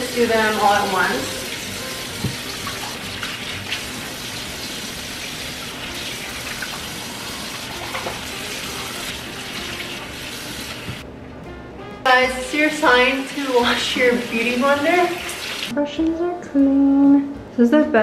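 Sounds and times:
tap water running: 0:00.0 - 0:11.0, 0:12.5 - 0:15.7.

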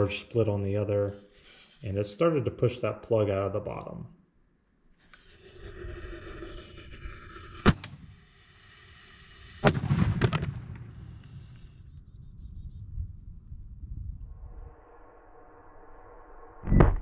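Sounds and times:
firework bang: 0:09.6 - 0:11.7
firework blast with crackling tail: 0:09.6 - 0:11.8
firework fuse hissing: 0:10.6 - 0:11.9.

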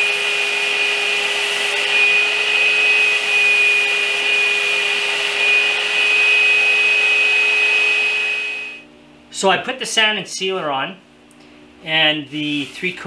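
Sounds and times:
spray gun hissing: 0:00.0 - 0:01.8
high whine: 0:01.5 - 0:08.9.

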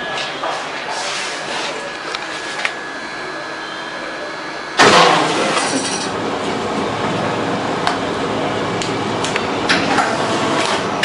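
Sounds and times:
faint steady high tone: 0:02.8 - 0:04.8.

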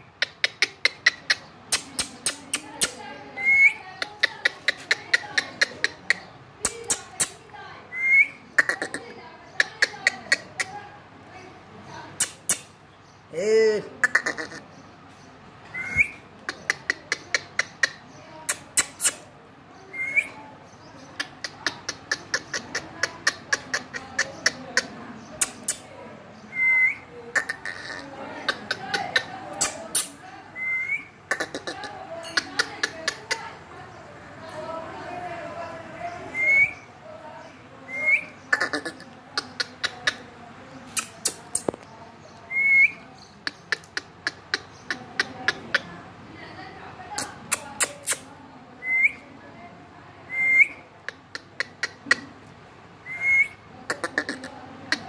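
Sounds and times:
parrot clicking: 0:00.2 - 0:03.0, 0:04.0 - 0:07.4, 0:21.2 - 0:25.9, 0:40.9 - 0:41.9, 0:43.4 - 0:45.9, 0:51.0 - 0:52.2
sharp clicks: 0:01.7 - 0:03.0, 0:12.2 - 0:12.8, 0:25.4 - 0:25.9, 0:40.9 - 0:41.9.

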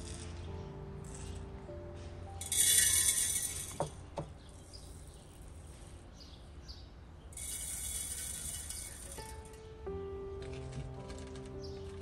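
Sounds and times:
seasoning grains hitting glass jar: 0:02.4 - 0:03.9.

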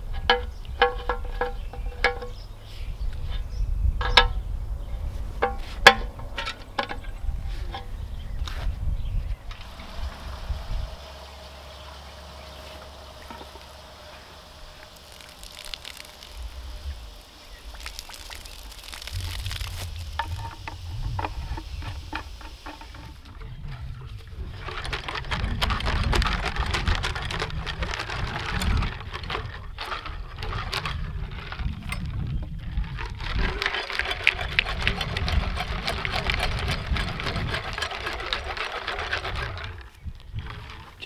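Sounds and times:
rocks rattling in a metal tank: 0:00.0 - 0:02.5, 0:05.4 - 0:07.9, 0:09.6 - 0:41.0.

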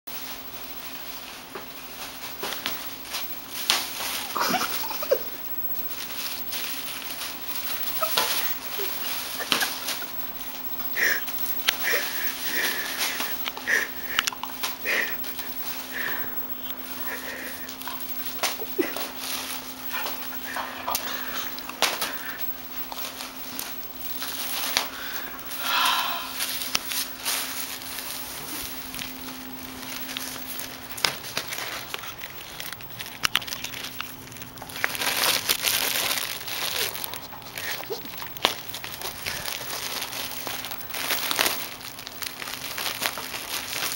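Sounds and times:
paw patter: 0:00.1 - 0:25.3
kitten whining cry: 0:07.8 - 0:09.2.

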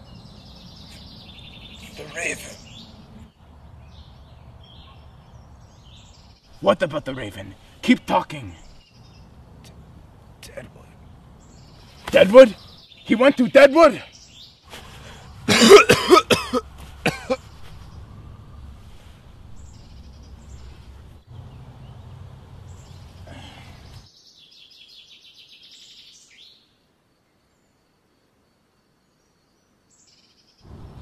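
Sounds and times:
faint low hum: 0:14.7 - 0:24.1
man coughing: 0:15.5 - 0:17.5.

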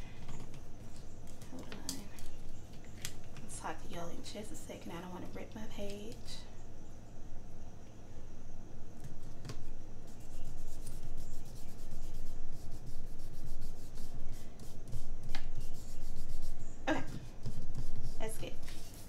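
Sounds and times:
fingers rubbing on paper: 0:09.0 - 0:19.0.

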